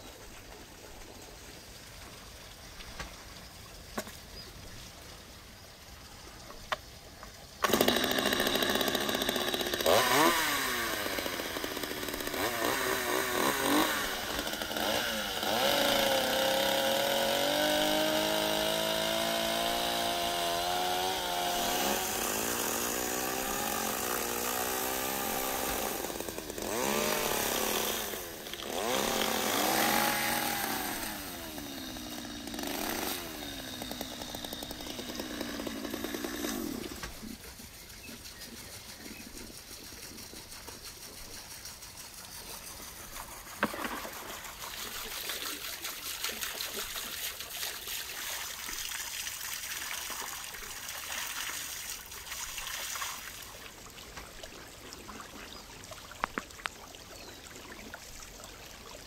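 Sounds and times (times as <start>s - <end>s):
chainsaw revving: 7.6s - 37.5s.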